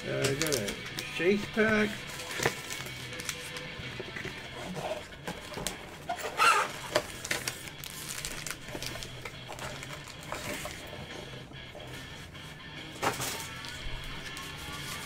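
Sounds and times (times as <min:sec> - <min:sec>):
foil packs crinkling: 0:00.1 - 0:04.1, 0:05.3 - 0:11.0, 0:13.0 - 0:15.0.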